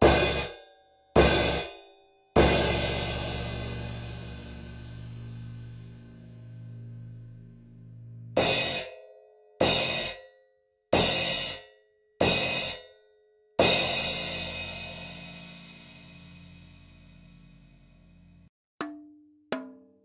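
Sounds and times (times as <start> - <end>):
crash cymbal strikes: 0.0 - 0.6, 1.2 - 8.9, 13.6 - 18.0.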